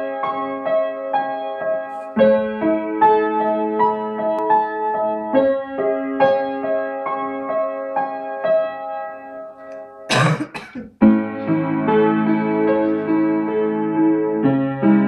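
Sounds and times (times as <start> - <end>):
piano broken chords: 0.0 - 15.0.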